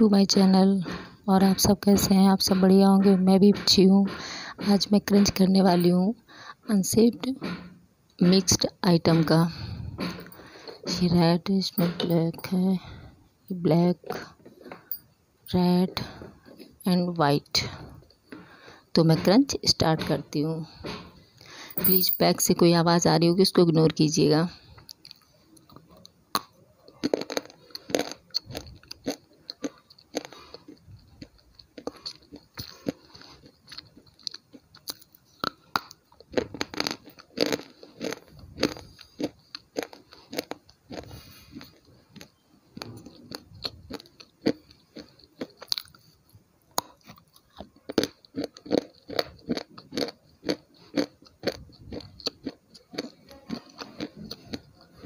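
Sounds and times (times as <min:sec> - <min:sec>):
chewing: 0:24.8 - 0:55.0
crunching of hard food: 0:24.8 - 0:55.0.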